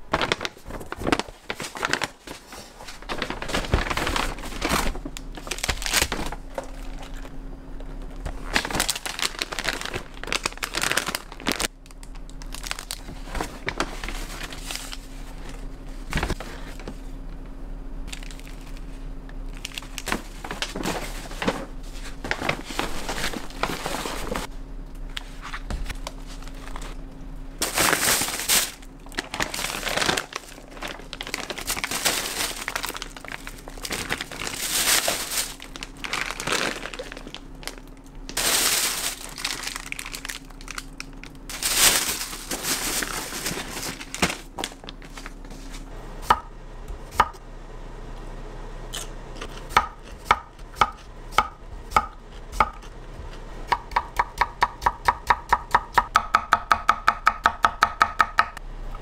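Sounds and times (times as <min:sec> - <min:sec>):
rustling and crinkling handling: 0:00.0 - 0:17.5, 0:18.1 - 0:45.9.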